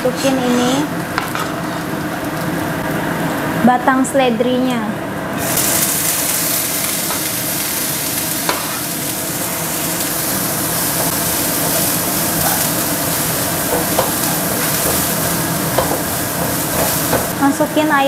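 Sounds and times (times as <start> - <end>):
vegetables sizzling in oil: 0.1 - 18.0
spatula tapping a wok: 13.7 - 17.4.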